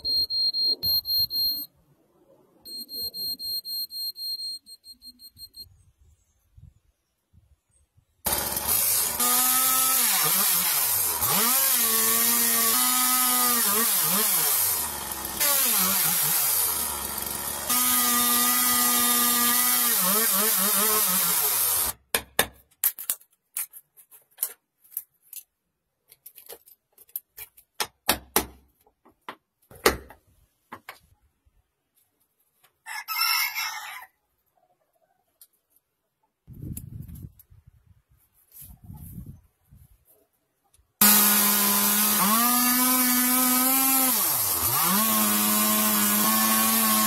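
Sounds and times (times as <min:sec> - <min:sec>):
electric power tool motor: 0:08.3 - 0:21.9, 0:41.0 - 0:47.0.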